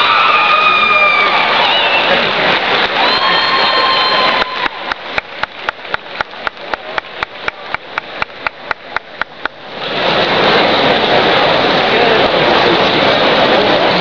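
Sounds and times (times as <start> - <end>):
crowd cheering and applauding: 0.0 - 12.7
rhythmic hand claps: 4.3 - 9.6.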